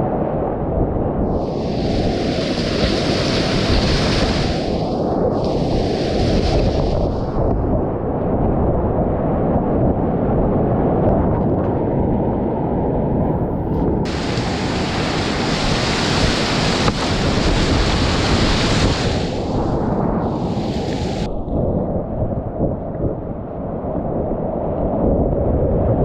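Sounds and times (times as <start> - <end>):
whitewater rapids roaring: 1.4 - 7.2, 14.1 - 21.3.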